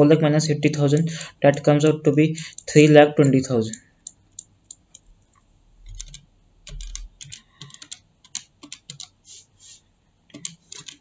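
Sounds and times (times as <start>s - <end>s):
light clicks and taps: 2.4s - 9.2s.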